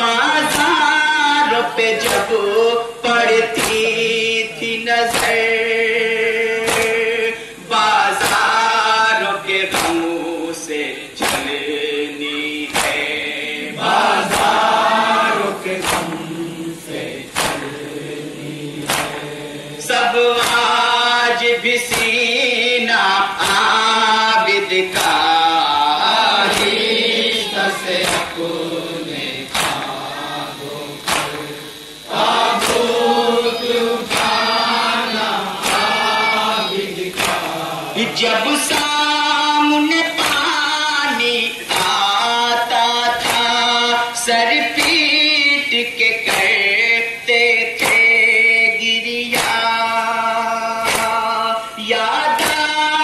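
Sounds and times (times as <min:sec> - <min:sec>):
group of men chanting: 0:00.0 - 0:53.0
man singing lead: 0:00.0 - 0:53.0
hands striking chests: 0:17.4 - 0:17.8, 0:18.9 - 0:19.3.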